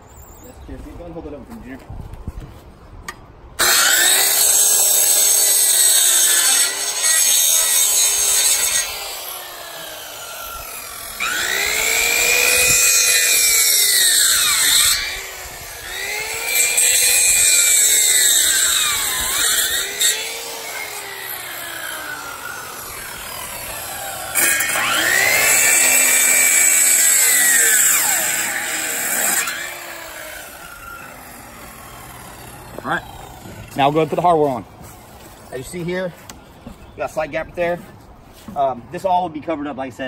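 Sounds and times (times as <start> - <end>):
circular saw cutting wood: 3.6 - 34.6.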